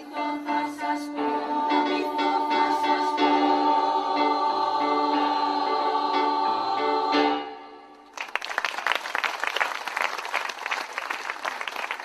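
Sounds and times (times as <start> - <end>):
choir singing a chord: 0.0 - 8.0
audience applause: 8.1 - 12.0.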